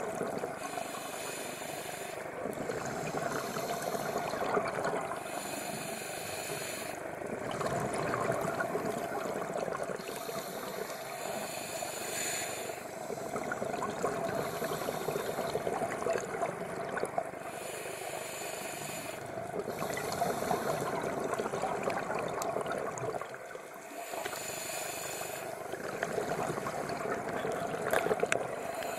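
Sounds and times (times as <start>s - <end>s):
underwater bubbling: 0.0s - 28.9s
diver breathing through regulator: 0.6s - 4.6s, 5.2s - 7.1s, 10.0s - 15.9s, 17.4s - 21.6s, 23.8s - 26.8s, 27.9s - 28.9s.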